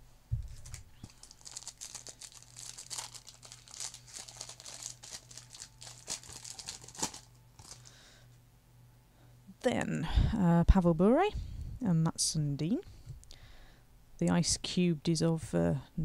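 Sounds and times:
wrapper crinkling and tearing: 0.5s - 7.9s.

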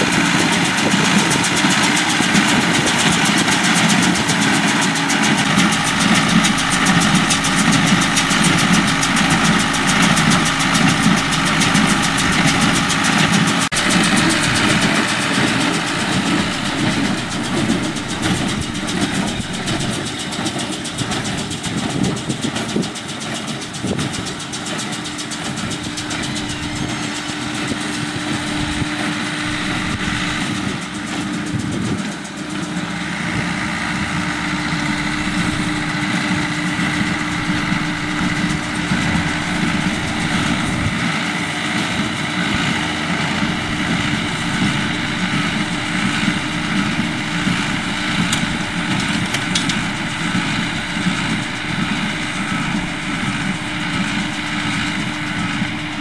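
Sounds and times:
steady high whine: 0.0s - 22.8s, 24.0s - 56.0s
tractor engine running: 0.0s - 56.0s
baler mechanism clattering: 43.6s - 56.0s.

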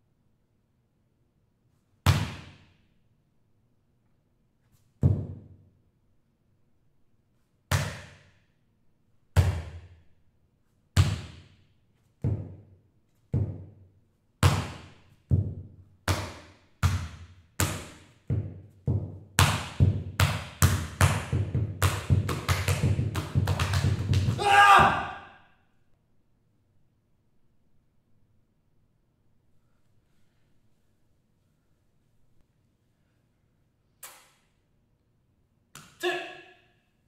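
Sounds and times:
hand slaps body percussion: 7.7s - 8.4s, 16.1s - 18.2s, 18.9s - 24.4s, 35.7s - 36.0s.

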